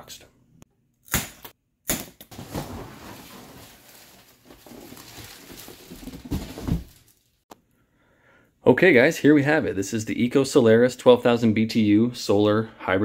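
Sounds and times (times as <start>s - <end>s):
cardboard scraping and rustling: 2.3s - 7.2s.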